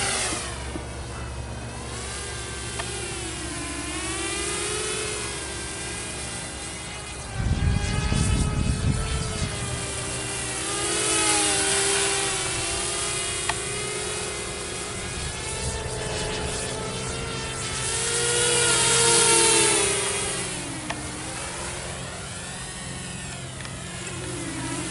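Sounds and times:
quadcopter propellers whining: 0:00.0 - 0:24.9
low rumble on microphone: 0:07.3 - 0:09.9.

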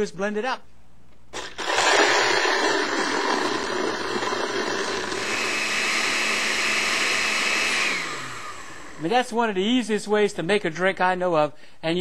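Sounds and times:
blender crushing ice: 0:01.4 - 0:09.1.

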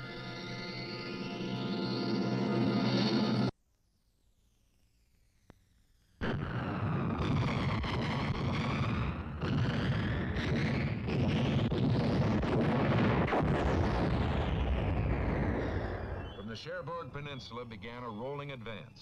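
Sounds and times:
sharp artillery blasts: 0:06.2 - 0:17.4.

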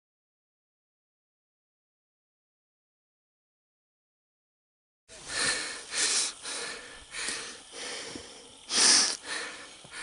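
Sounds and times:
person breathing hard: 0:05.2 - 0:10.0.

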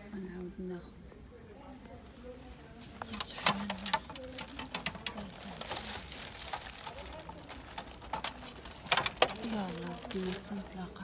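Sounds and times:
faint voices: 0:00.0 - 0:11.0
plastic clicking: 0:03.0 - 0:10.7
cellophane wrap crackling: 0:03.0 - 0:11.0.

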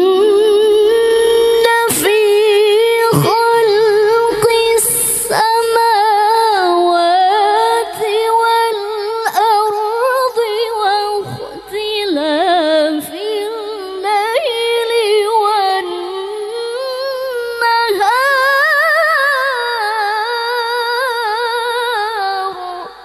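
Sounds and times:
woman chanting into microphone: 0:00.0 - 0:23.0.

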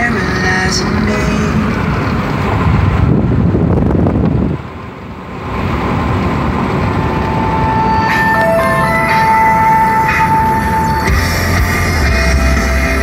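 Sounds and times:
car road and wind noise: 0:00.0 - 0:13.0
music: 0:07.7 - 0:13.0.

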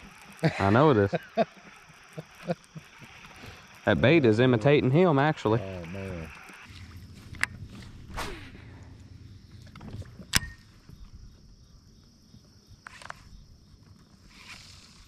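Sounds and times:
fishing reel spool whirring: 0:00.0 - 0:08.1
sharp click: 0:10.3 - 0:10.7.

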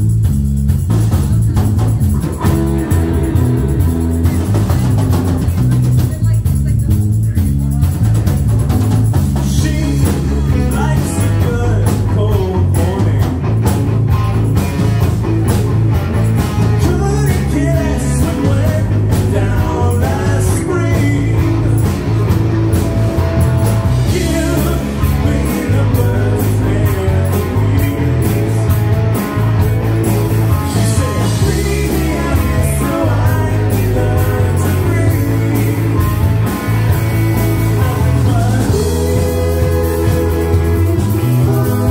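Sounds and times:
drum kit with cymbals: 0:00.0 - 0:41.9
electric guitars: 0:00.0 - 0:41.9
heavy bass line: 0:00.0 - 0:41.9
person singing into microphone: 0:09.4 - 0:13.4, 0:16.8 - 0:22.3, 0:24.0 - 0:28.9, 0:30.5 - 0:36.6, 0:37.7 - 0:41.9.

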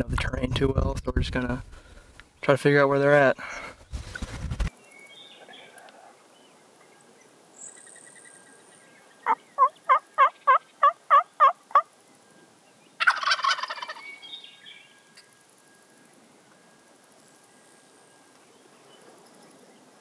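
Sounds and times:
turkey call yelps: 0:09.2 - 0:11.9, 0:13.0 - 0:14.3
turkey gobbling: 0:09.2 - 0:12.0, 0:13.0 - 0:14.3.

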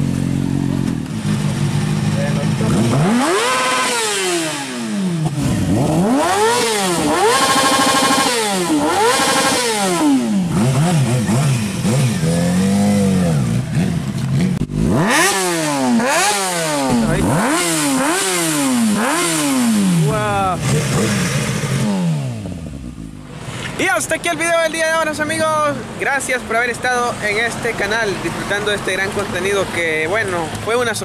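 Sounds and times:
motorcycle engine revving: 0:00.0 - 0:23.8.

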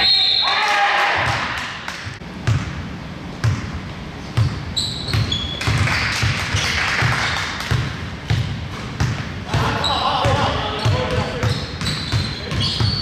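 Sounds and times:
short high squeaks: 0:04.8 - 0:05.7, 0:11.5 - 0:13.0
basketball dribbling on wooden floor: 0:07.7 - 0:09.3.

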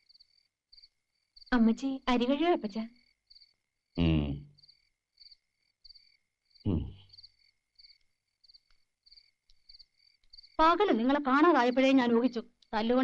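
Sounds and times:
crickets chirping: 0:00.0 - 0:13.0
short falling vocal sounds: 0:04.0 - 0:04.4, 0:06.7 - 0:07.0.

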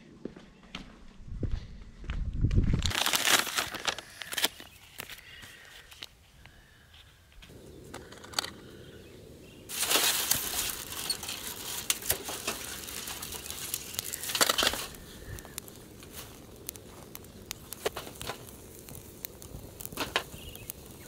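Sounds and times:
dry grass rustling and crunching: 0:02.6 - 0:06.1, 0:09.7 - 0:21.0.

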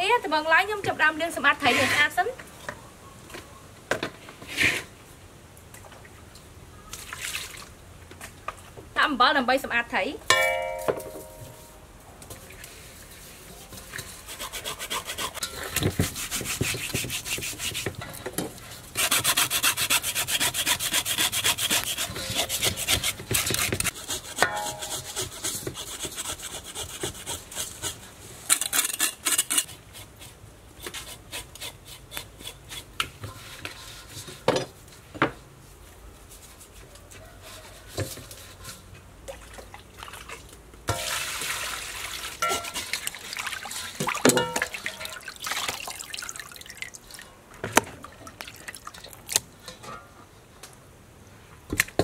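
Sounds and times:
rasping rub of salt on fish: 0:19.0 - 0:28.0
water pouring into bowl: 0:41.0 - 0:47.2.

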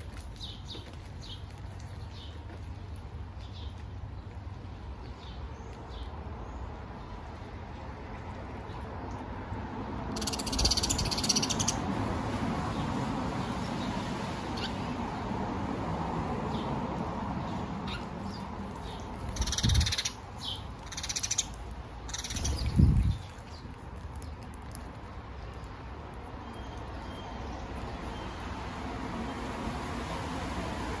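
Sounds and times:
outdoor background: 0:00.0 - 0:31.0
squirrels chattering calls: 0:10.1 - 0:11.8, 0:17.8 - 0:23.4.

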